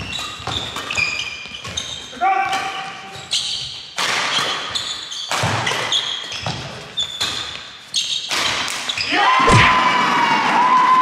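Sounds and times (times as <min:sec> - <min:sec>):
shoe squeaks on court floor: 0:00.0 - 0:09.1
loud thud: 0:09.4 - 0:10.0.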